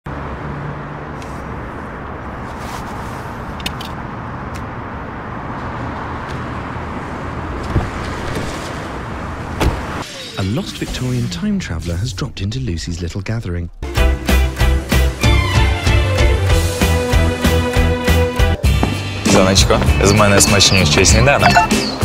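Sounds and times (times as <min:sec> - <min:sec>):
passing cars and tyres: 0:00.1 - 0:11.6, 0:18.1 - 0:22.0.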